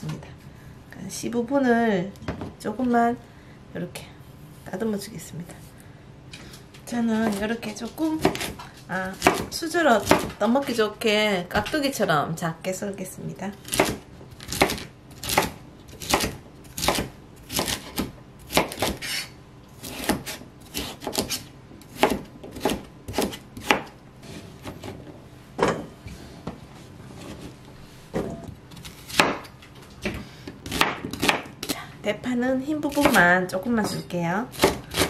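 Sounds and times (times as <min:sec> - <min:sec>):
knife chopping on wooden board: 0:08.2 - 0:10.4, 0:13.7 - 0:24.0, 0:28.2 - 0:29.5, 0:30.6 - 0:31.5, 0:34.5 - 0:35.0.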